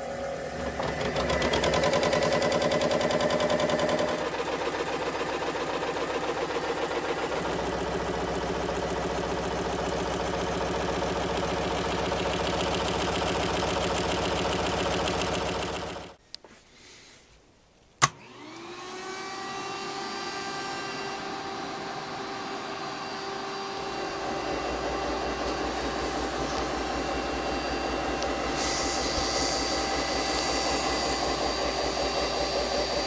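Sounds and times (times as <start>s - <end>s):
scroll saw running: 0.0s - 16.1s, 18.0s - 33.0s.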